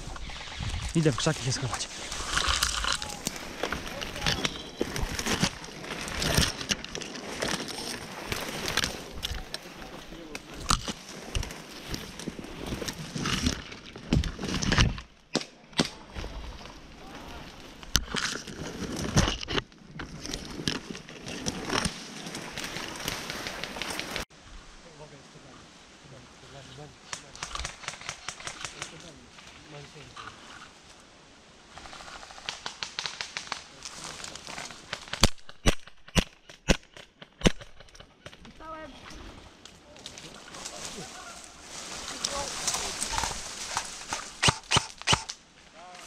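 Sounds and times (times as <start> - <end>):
brush rustling: 0.0 - 15.2, 15.8 - 24.3, 25.2 - 35.3, 38.3 - 46.0
twigs snapping: 2.0 - 9.6, 39.6 - 45.4.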